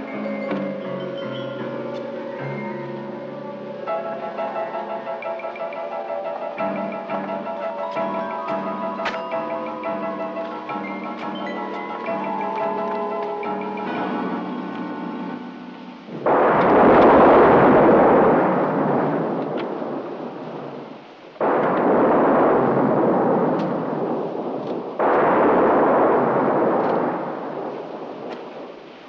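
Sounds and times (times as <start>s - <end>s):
sudden loud crashes: 16.1s - 20.0s.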